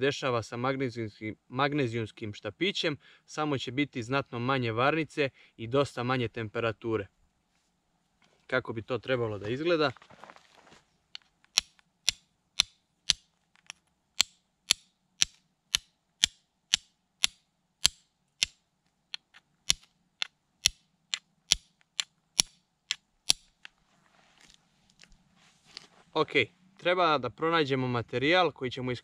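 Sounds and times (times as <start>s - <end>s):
fire striker clicking on stone: 11.5s - 23.7s.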